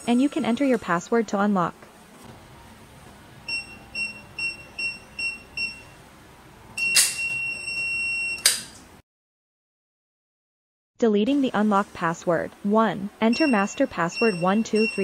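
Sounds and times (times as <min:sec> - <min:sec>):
keypad beeps: 0:03.5 - 0:06.0, 0:06.8 - 0:08.5, 0:13.3 - 0:15.0
long steady beep: 0:03.5 - 0:06.0, 0:06.8 - 0:08.5, 0:13.3 - 0:15.0.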